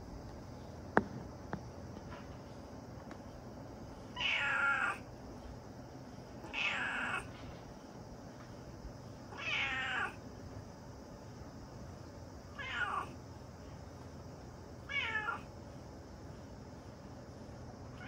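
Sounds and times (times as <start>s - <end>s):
cat meowing: 4.2s - 5.0s, 6.4s - 7.3s, 9.3s - 10.2s, 12.5s - 13.2s, 14.9s - 15.5s.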